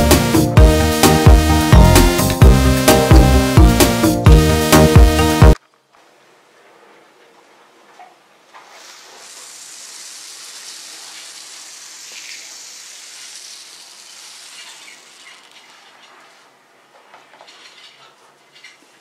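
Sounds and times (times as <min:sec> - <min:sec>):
foam beads pouring hiss: 0:08.7 - 0:16.4.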